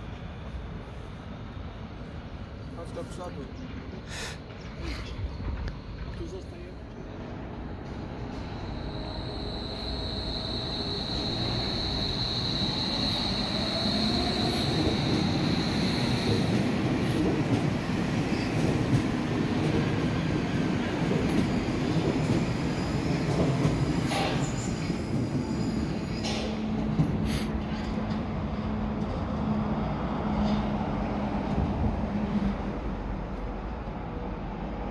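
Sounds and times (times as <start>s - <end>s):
train cars rumbling and rattling: 0.0s - 34.9s
train wheels squealing: 8.1s - 17.2s, 17.8s - 18.7s, 20.2s - 28.0s.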